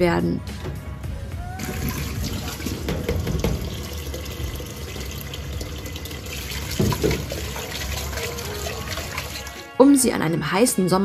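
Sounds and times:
tap water running into pot: 0:01.6 - 0:09.7.

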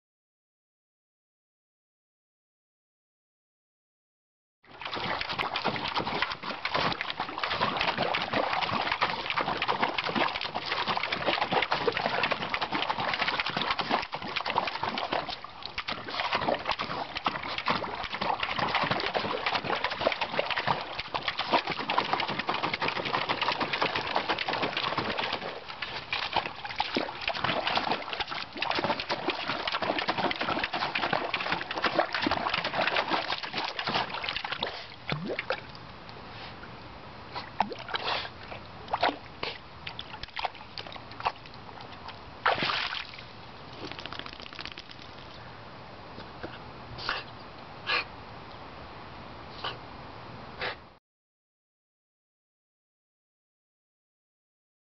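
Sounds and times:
dog splashing in metal tub: 0:04.7 - 0:35.6, 0:39.9 - 0:41.4, 0:42.4 - 0:43.2, 0:43.8 - 0:45.2.

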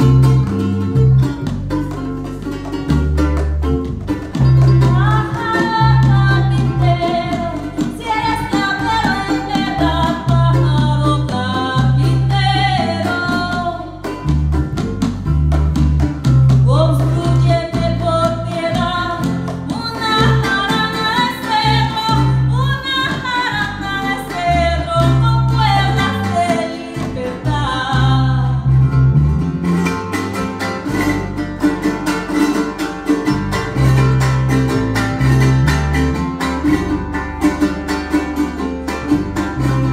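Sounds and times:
electric bass: 0:00.0 - 0:39.9
strummed string instruments: 0:00.0 - 0:39.9
woman singing: 0:04.8 - 0:14.2, 0:16.6 - 0:28.8.

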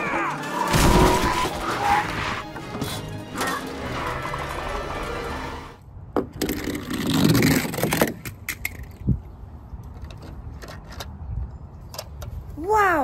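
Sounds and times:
soundtrack music: 0:00.0 - 0:05.8.

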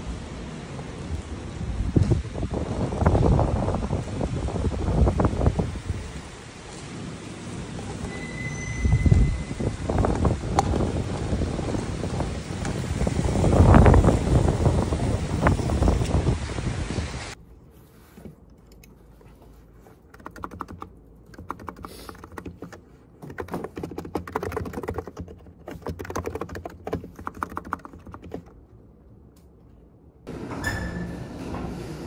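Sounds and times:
typing on keyboard: 0:20.1 - 0:28.6.

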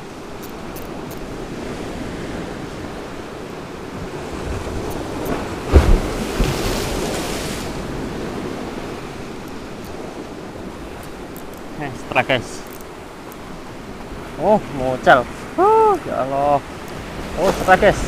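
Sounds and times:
wind on microphone: 0:00.0 - 0:11.7
sea waves washing on shore: 0:00.0 - 0:18.0
wave breaking with low thump: 0:04.4 - 0:09.2.

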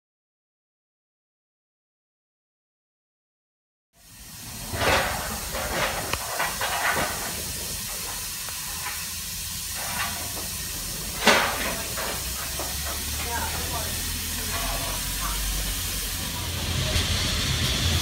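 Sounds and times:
locomotive steam hissing: 0:04.0 - 0:18.0.

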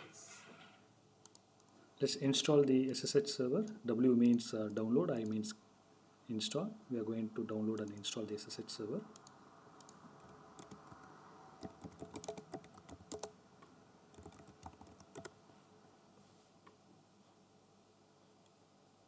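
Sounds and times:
keyboard key clicks: 0:11.6 - 0:13.3.

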